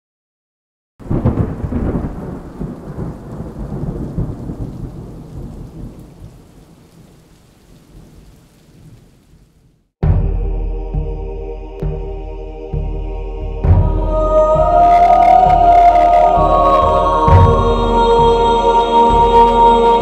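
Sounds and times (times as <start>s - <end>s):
thunder clap rumbling: 1.0s - 9.4s, 11.8s - 20.0s
rain hissing: 1.0s - 9.9s, 11.8s - 20.0s
music: 10.0s - 20.0s.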